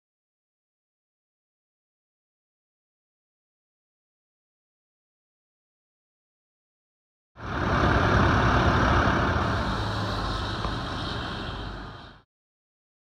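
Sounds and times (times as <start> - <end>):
diesel engine idling: 7.4 - 12.2
even rushing noise: 7.4 - 12.2.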